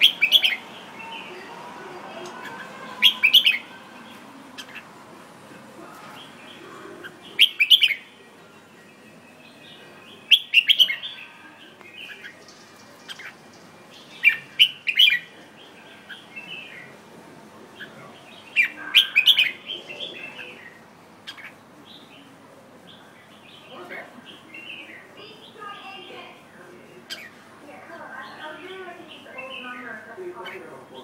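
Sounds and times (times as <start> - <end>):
bird twittering: 0.0 - 1.3, 2.2 - 3.7, 4.6 - 4.9, 6.2 - 8.1, 9.8 - 11.3, 12.0 - 15.3, 17.8 - 22.3, 27.1 - 27.4.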